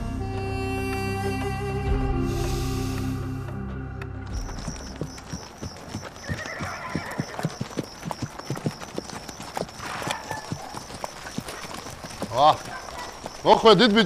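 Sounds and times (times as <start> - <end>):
horse hooves clip-clopping: 2.9 - 14.0.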